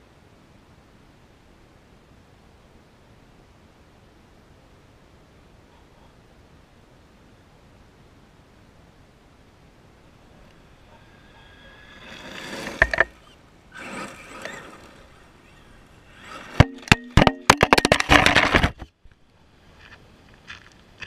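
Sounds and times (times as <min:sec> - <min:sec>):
gravel crunching: 0:10.0 - 0:21.0
rc truck motor whine: 0:10.2 - 0:17.3.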